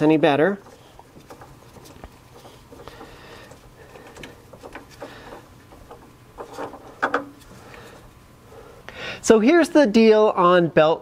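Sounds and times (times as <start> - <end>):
metal parts clicking and tapping: 0.6 - 7.5.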